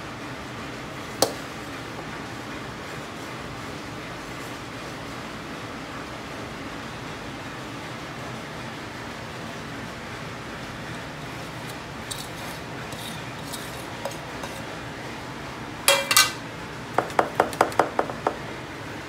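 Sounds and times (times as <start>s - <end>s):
cooking pots clinking together: 15.9s - 16.4s.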